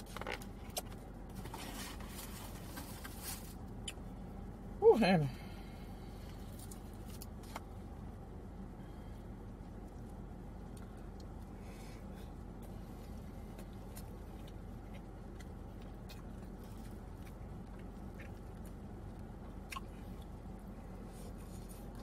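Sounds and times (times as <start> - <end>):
low hum inside car: 0.0 - 22.0
close-up chewing: 12.2 - 22.0.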